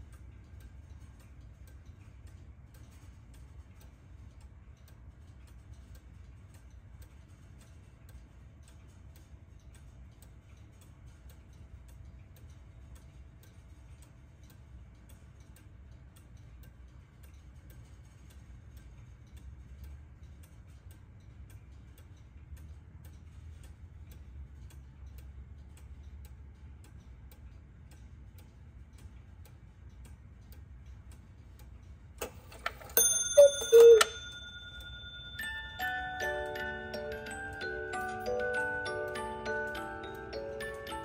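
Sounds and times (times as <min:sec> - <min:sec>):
cuckoo clock ticking: 0:18.7 - 0:41.0
clock strike click: 0:32.2 - 0:37.7
ringing metallic note: 0:33.0 - 0:35.2
two-note cuckoo call: 0:33.2 - 0:34.5.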